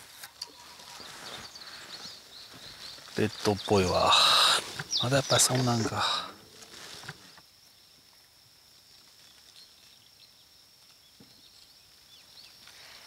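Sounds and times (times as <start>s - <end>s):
bird chirps: 0.0s - 6.7s.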